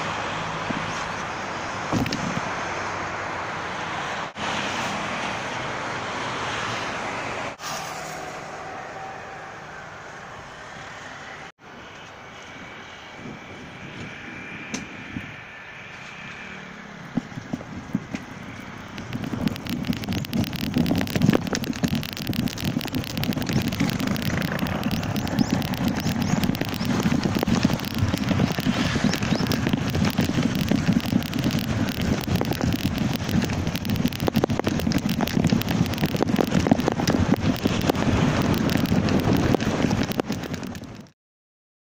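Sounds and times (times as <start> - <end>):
kayak rolling on wheels over pavement: 17.0 - 41.1.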